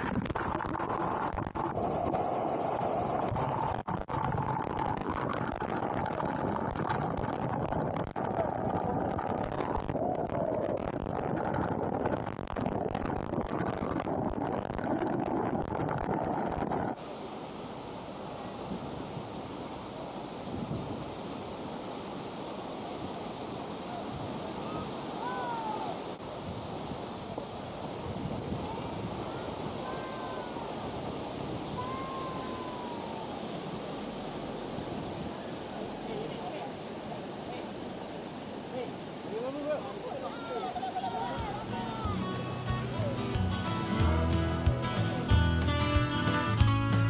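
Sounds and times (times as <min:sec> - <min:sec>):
waterfall roaring: 0:17.0 - 0:47.0.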